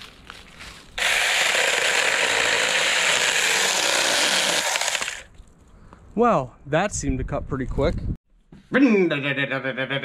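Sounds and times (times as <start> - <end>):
chainsaw cutting branch: 1.0 - 5.3.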